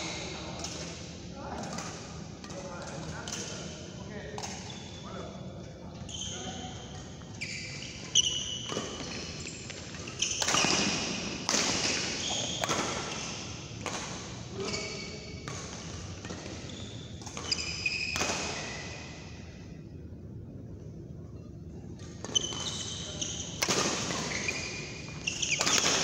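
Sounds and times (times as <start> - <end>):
shoes squeaking on court: 4.4 - 5.1, 6.0 - 11.2, 14.6 - 19.0, 22.2 - 26.0
rackets striking shuttlecock: 10.2 - 14.2, 23.5 - 26.0.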